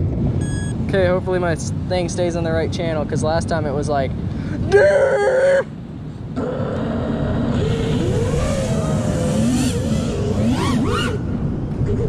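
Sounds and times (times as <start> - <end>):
drone motors whining: 6.4 - 12.0.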